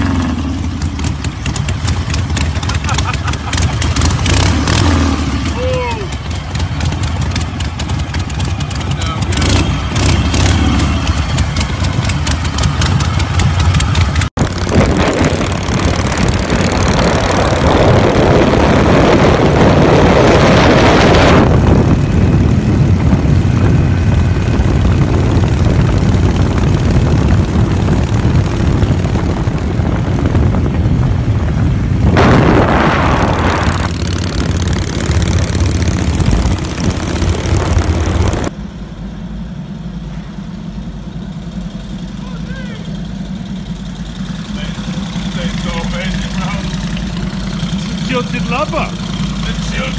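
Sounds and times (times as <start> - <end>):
motorcycle engine running: 0.0 - 49.9
motorcycle riding at speed: 0.0 - 49.9
wind rushing over microphone: 14.3 - 38.5.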